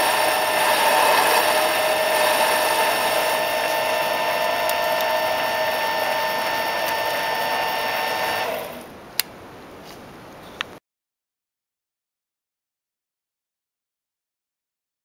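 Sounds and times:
lathe whine spinning down: 0.0s - 8.8s.

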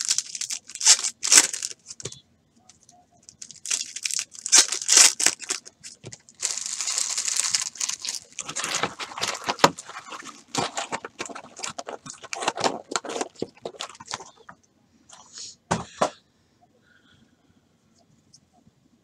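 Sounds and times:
cards clicking and rustling: 0.0s - 14.5s.

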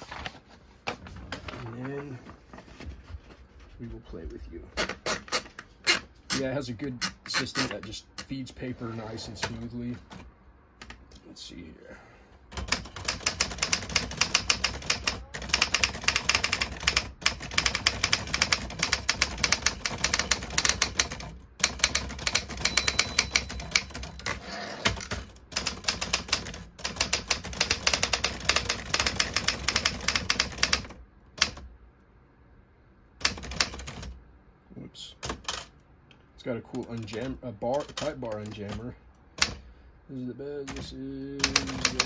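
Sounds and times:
manual typewriter typing: 12.5s - 31.7s, 33.2s - 34.2s, 36.7s - 39.6s, 40.6s - 42.0s.

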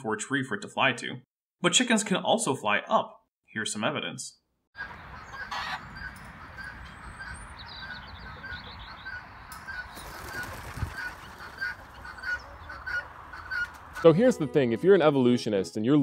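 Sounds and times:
low wind rumble: 4.8s - 14.0s
small birds chirping: 4.8s - 14.1s
fowl calling: 4.8s - 14.3s.

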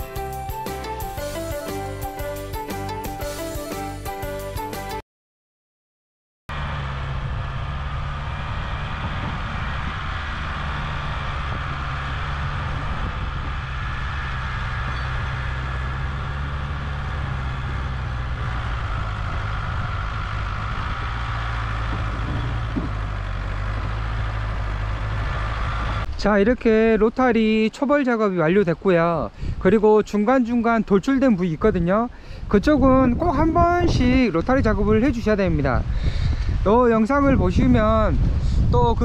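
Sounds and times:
tractor diesel engine under load: 6.5s - 26.3s, 37.4s - 39.0s.

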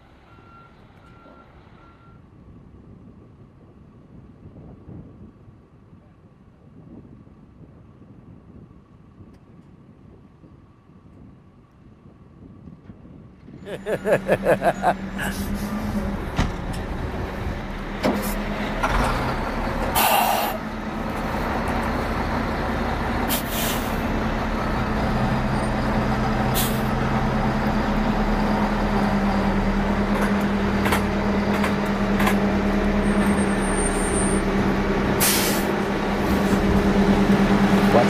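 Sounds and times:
diesel truck engine droning: 13.5s - 38.0s
air brake hisses: 20.0s - 20.6s, 23.3s - 24.0s, 26.6s - 26.9s, 35.2s - 35.7s.

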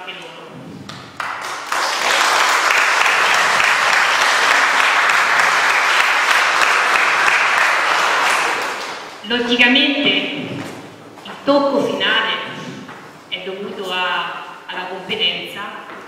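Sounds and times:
audience applauding: 0.9s - 9.2s.

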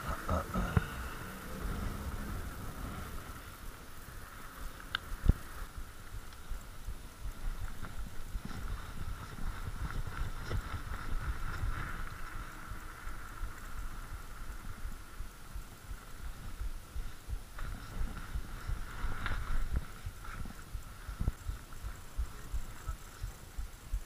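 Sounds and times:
bike knocking and rattling: 0.0s - 24.0s
bike tyre hum on tarmac: 0.0s - 24.0s
wind rumble on microphone: 0.0s - 24.0s.

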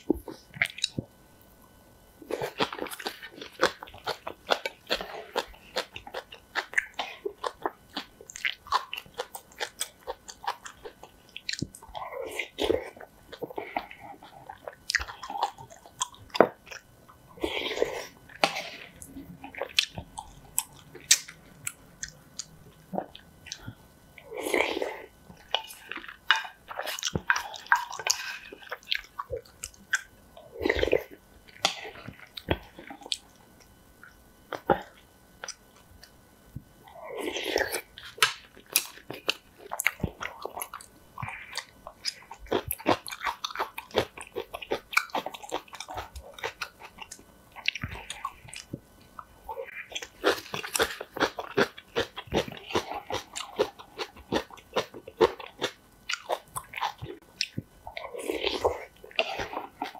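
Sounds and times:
chewing and biting noodles: 37.2s - 48.7s, 49.7s - 59.9s
crunching kimchi: 49.5s - 59.9s.

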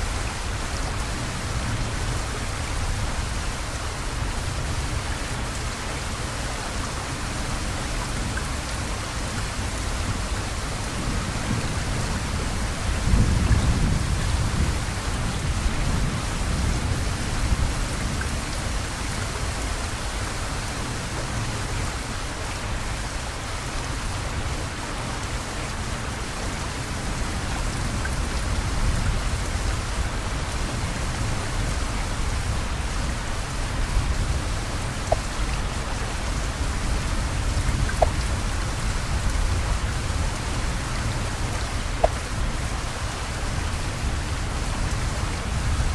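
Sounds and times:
heavy rain falling: 0.0s - 45.9s
low rumble of thunder: 10.1s - 19.6s.

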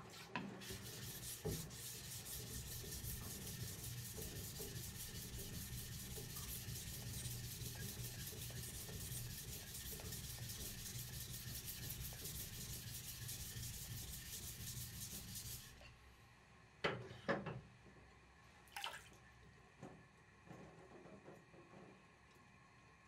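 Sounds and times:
stone scraping on wet whetstone: 0.1s - 15.8s
water splashing in tub: 18.7s - 19.2s.

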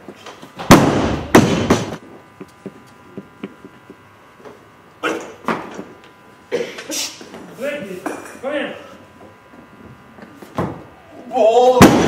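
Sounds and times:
barbell crashing onto platform: 0.6s - 2.0s, 11.8s - 12.0s.

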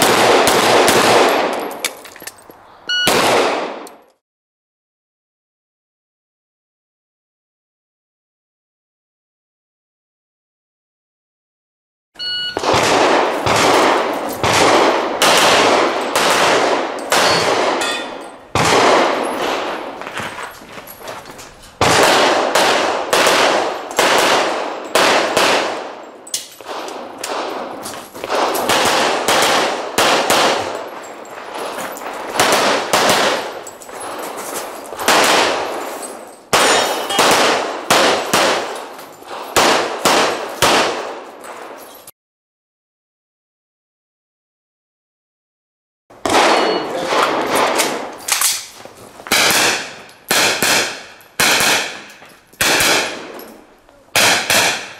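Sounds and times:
pistol shots: 0.0s - 2.0s, 3.0s - 4.0s, 12.6s - 20.0s, 21.8s - 41.8s, 46.2s - 48.7s, 49.3s - 54.9s.

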